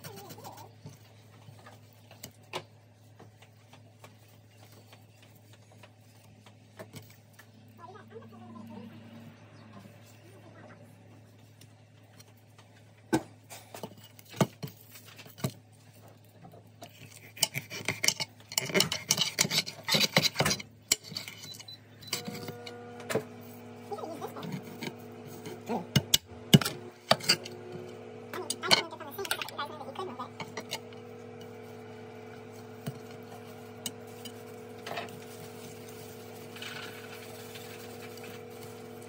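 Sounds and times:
knife scraping fish scales: 16.8 - 22.6
steady hum: 21.7 - 39.0.

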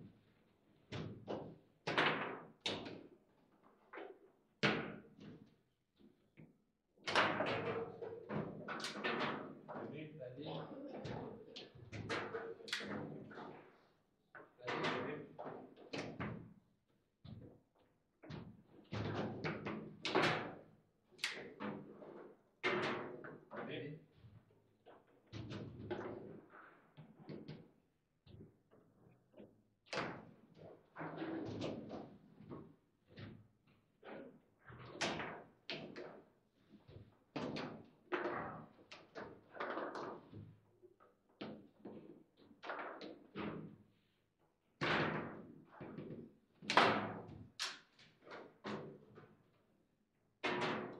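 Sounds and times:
table football knocks and clacks: 4.0 - 5.5, 7.1 - 9.9, 37.4 - 40.6, 50.4 - 50.9.

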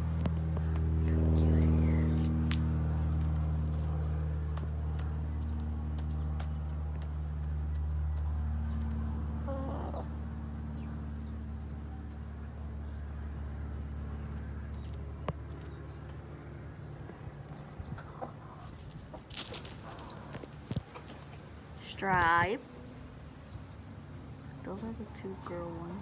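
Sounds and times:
low hum: 0.0 - 26.0
small birds chirping: 0.0 - 26.0
chicken clucking: 17.6 - 21.2.

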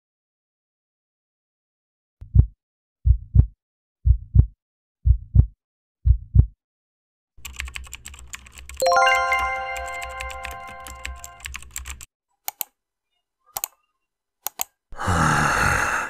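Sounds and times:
heartbeat thumps: 2.2 - 6.6
rapid clicking: 7.4 - 8.8.

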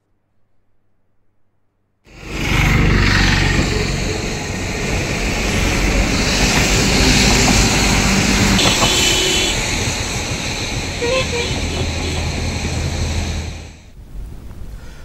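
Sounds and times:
floodwater rushing through gates: 2.1 - 13.9.

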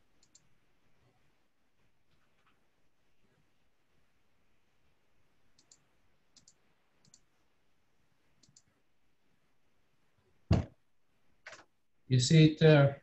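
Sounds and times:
mouse clicking: 0.1 - 0.5, 5.5 - 7.3, 8.4 - 8.8
loud short thump: 10.5 - 10.8.

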